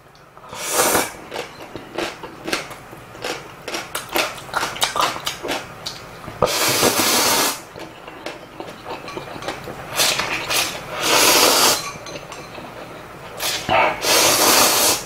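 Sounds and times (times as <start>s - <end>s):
wet chewing: 0.9s - 6.1s, 6.8s - 11.5s.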